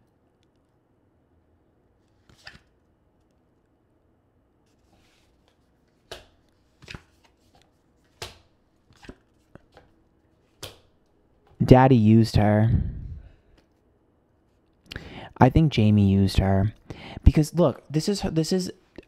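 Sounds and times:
cards swishing and slapping: 0:02.1 - 0:02.8, 0:04.7 - 0:10.9.

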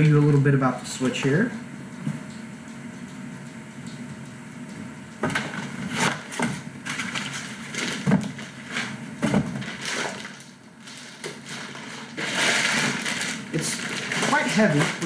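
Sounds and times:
plastic bag crinkling: 0:05.4 - 0:15.0.

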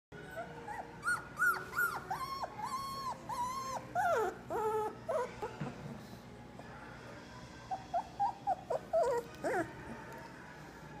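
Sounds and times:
puppy whining: 0:00.2 - 0:05.7, 0:07.7 - 0:10.2.

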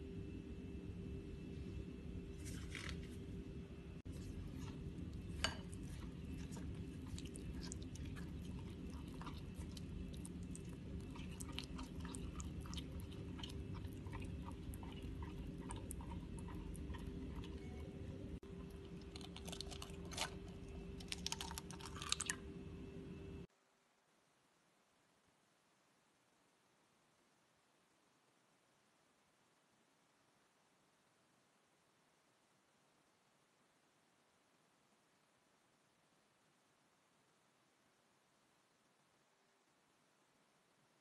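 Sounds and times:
steady low hum: 0:00.0 - 0:23.5.

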